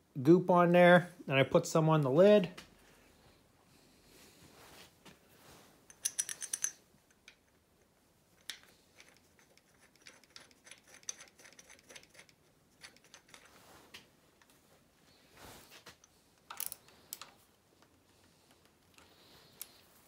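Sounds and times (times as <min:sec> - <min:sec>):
metal clinking on metal: 0:05.9 - 0:07.4.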